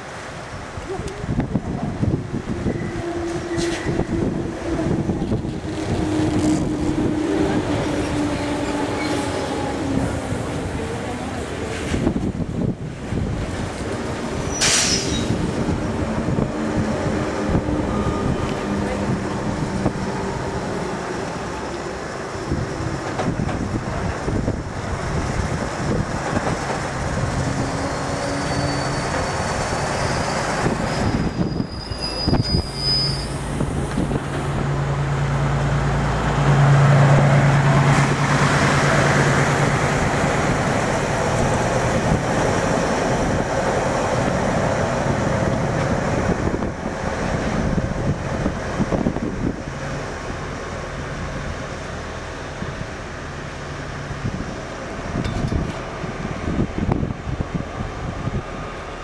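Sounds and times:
rail vehicle engine and wheels: 0:00.0 - 0:59.0
thin high squeal: 0:27.8 - 0:33.5.

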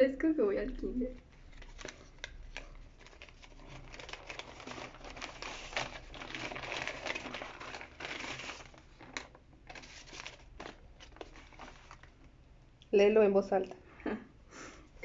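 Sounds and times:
paper envelope rustling: 0:01.1 - 0:12.3.

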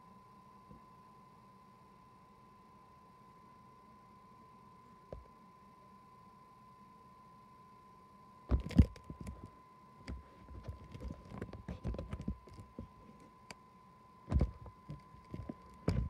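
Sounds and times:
phone handling bumps and rubbing: 0:08.5 - 0:13.3, 0:14.3 - 0:16.0.

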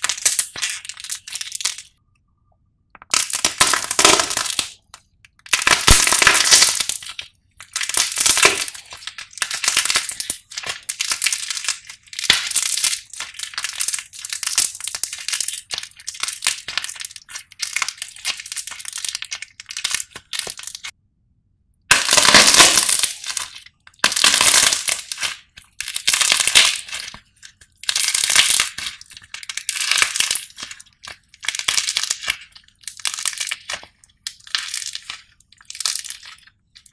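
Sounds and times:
clay coating cracking and crunching: 0:03.0 - 0:21.0, 0:21.9 - 0:36.9.

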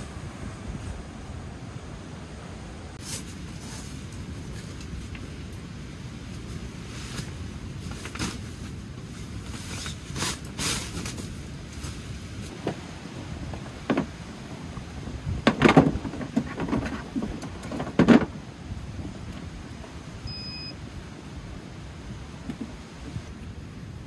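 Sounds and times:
low wind rumble: 0:00.0 - 0:24.0
items clattering in truck bed: 0:09.3 - 0:19.9.

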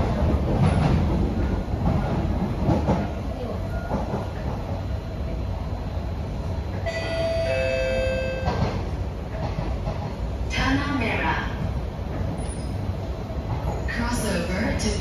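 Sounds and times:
train wheel clacks: 0:00.0 - 0:04.8, 0:08.4 - 0:10.7
train rumbling on rails: 0:00.0 - 0:15.0.

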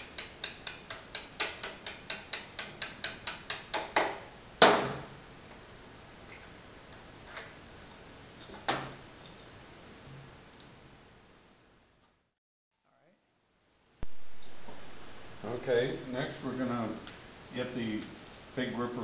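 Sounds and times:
hammer tapping a metal punch: 0:00.0 - 0:04.2.

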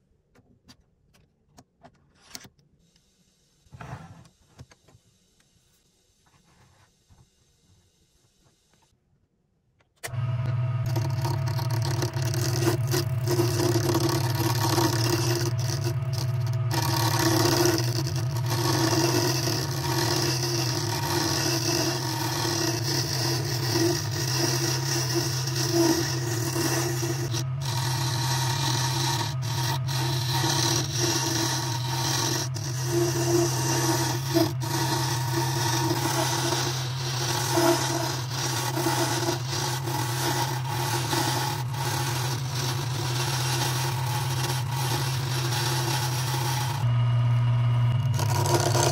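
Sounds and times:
turning tool scraping wood: 0:10.1 - 0:47.0, 0:47.9 - 0:48.9
wood lathe humming: 0:10.1 - 0:48.9.

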